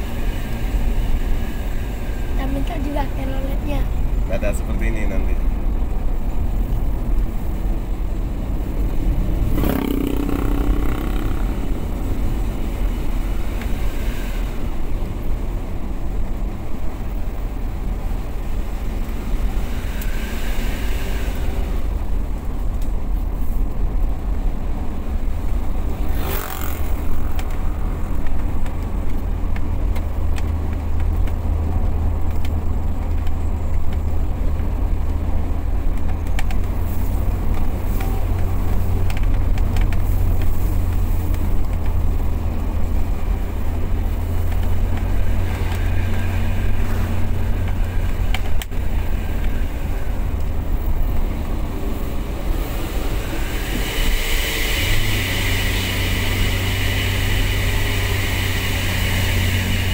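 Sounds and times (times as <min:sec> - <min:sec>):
car engine and tyre drone: 0:00.0 - 0:59.9
high hiss: 0:52.0 - 0:59.9.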